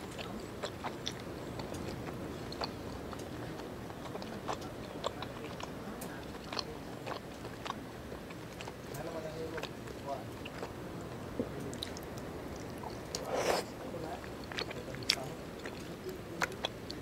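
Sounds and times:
person chewing food: 0.0 - 10.8, 11.6 - 17.0
wet mouth clicks: 11.7 - 13.8.

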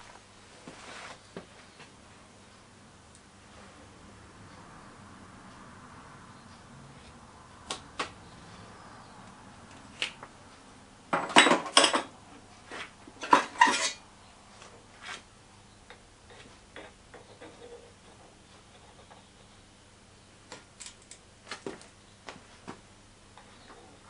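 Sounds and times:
metal tools clanking: 13.2 - 14.0.

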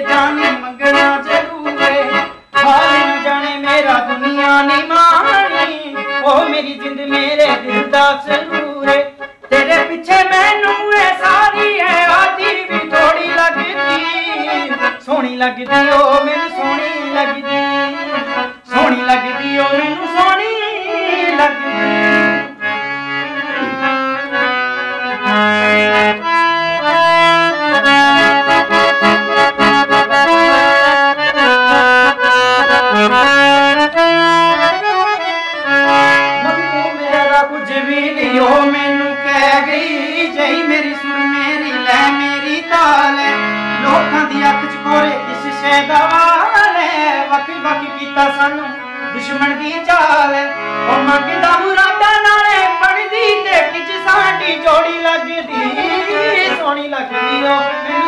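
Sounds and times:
man singing: 0.0 - 22.6, 29.7 - 58.0
harmonium melody: 0.0 - 58.0.

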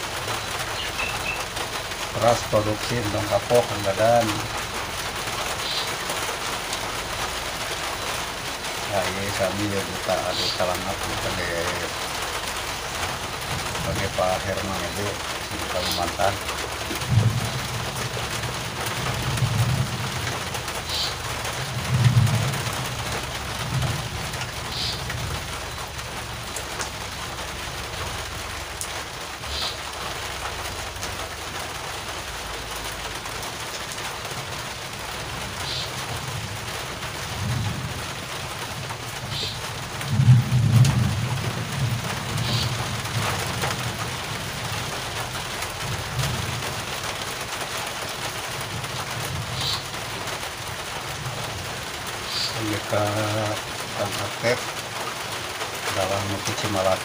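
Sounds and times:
rain falling: 0.0 - 57.0
low rumbles: 6.6 - 29.4.

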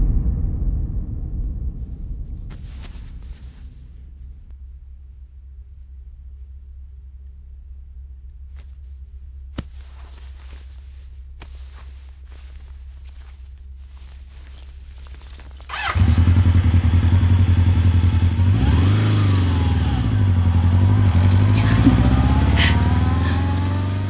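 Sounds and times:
low hum: 0.0 - 24.0
motorcycle engine revving: 15.7 - 24.0.

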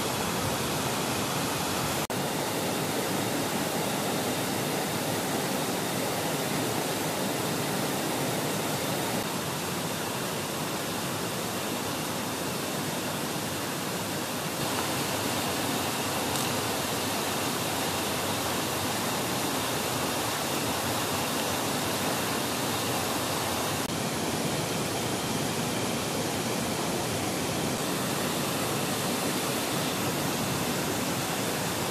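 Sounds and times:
stream and waterfall rushing: 0.0 - 31.9.

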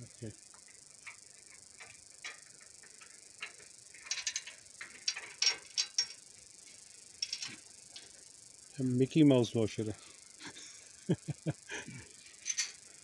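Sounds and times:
ratchet wrench clicking: 1.8 - 6.2.

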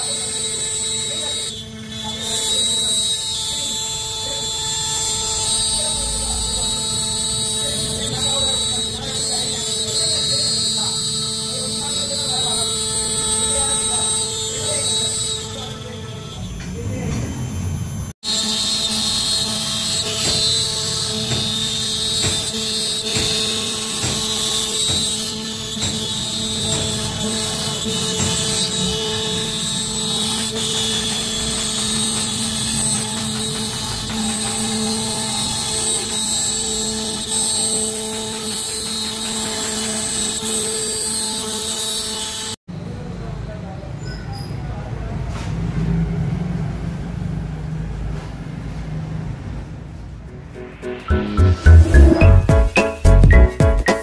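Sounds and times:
router spindle whining: 0.0 - 42.6.

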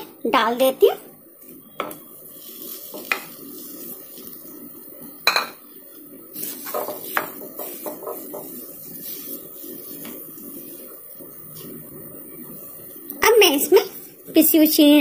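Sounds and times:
spatula scraping pan: 6.3 - 11.0.

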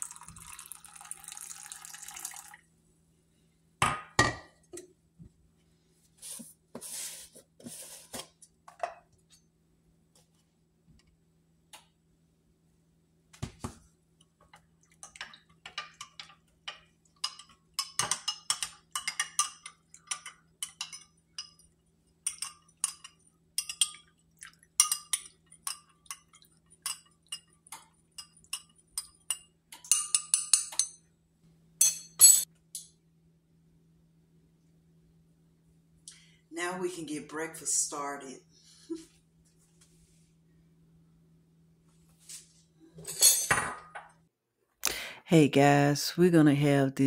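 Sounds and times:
spoon clinking in glass mug: 28.2 - 31.0.

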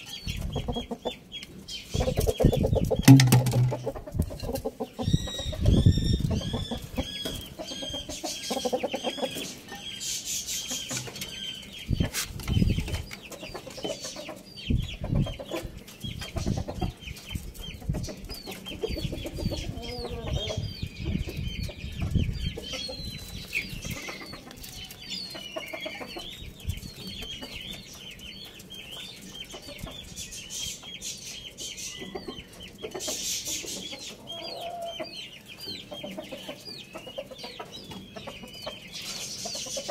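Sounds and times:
chickens clucking: 0.0 - 39.9
low thumps: 3.0 - 4.0.

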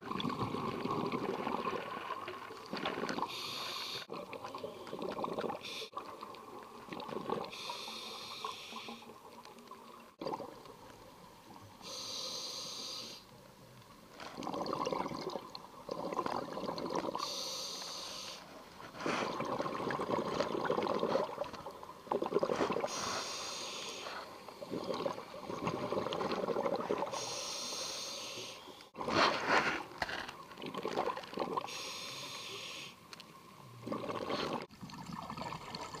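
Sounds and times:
gurgle of exhaled bubbles: 0.0 - 3.4, 4.1 - 7.6, 14.3 - 17.2, 19.1 - 22.9, 24.6 - 27.2, 30.6 - 31.7, 33.8 - 36.0
regulator hissing inhale: 3.3 - 4.1, 7.5 - 9.1, 11.8 - 13.3, 17.2 - 19.3, 22.8 - 24.5, 27.1 - 29.9, 31.7 - 33.0.

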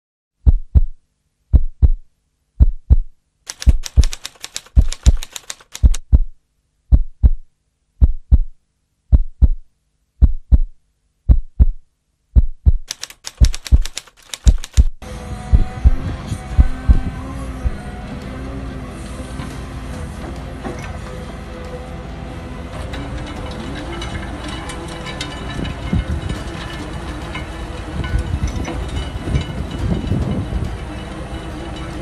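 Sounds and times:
heartbeat double thud: 0.4 - 3.1, 5.8 - 11.8, 12.4 - 12.9, 14.5 - 17.8
typewriter key clatter: 3.5 - 6.0, 12.9 - 15.0.

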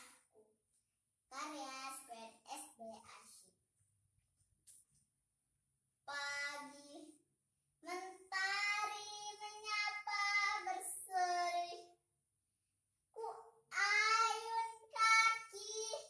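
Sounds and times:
girl reciting in sing-song voice: 6.1 - 7.1, 7.8 - 11.9, 13.2 - 16.0.

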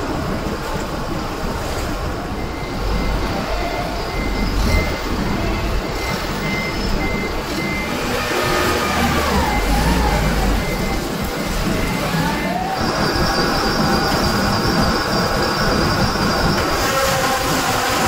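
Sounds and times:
forklift engine rumbling: 0.0 - 18.0
reversing beep: 2.2 - 17.0.

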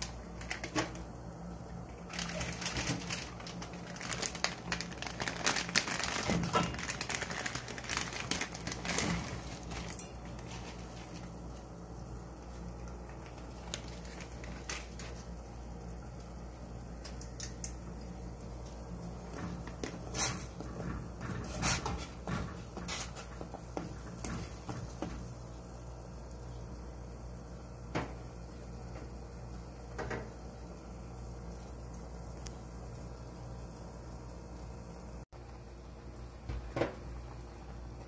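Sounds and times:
plastic packet crinkling: 0.0 - 1.1, 2.0 - 11.6, 13.1 - 15.4.

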